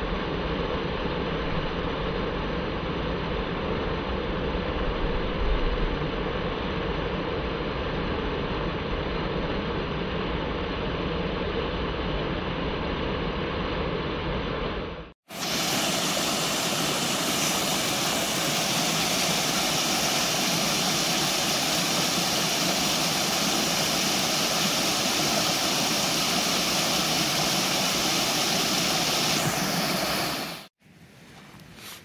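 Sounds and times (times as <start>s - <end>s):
water rushing over waterfall: 15.3s - 30.7s.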